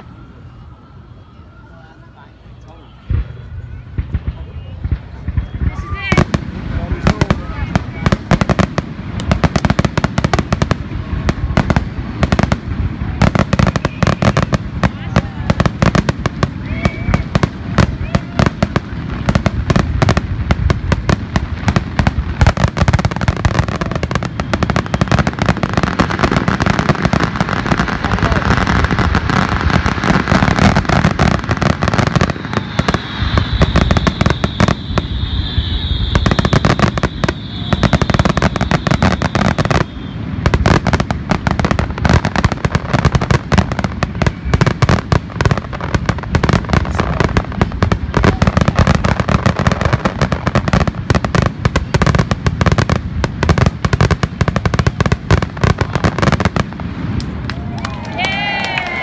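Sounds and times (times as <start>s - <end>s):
high steady whistle: 0.0s - 6.2s, 13.4s - 14.7s, 23.1s - 26.9s, 30.5s - 41.8s
fireworks bursting: 0.0s - 59.0s.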